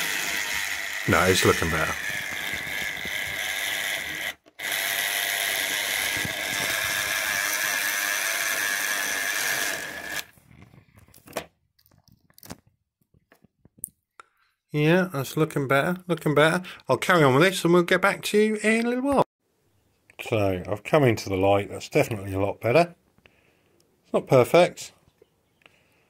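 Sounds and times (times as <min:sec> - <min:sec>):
wheels scrubbing on wire brushes: 0:00.0 - 0:04.8
model locomotive motor whirring: 0:00.0 - 0:10.3.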